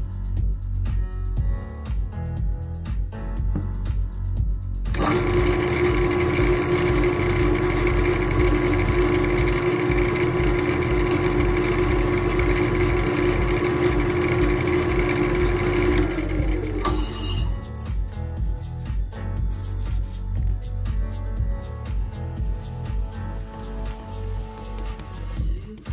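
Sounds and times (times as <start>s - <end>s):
power tool motor whining: 5.0s - 17.5s.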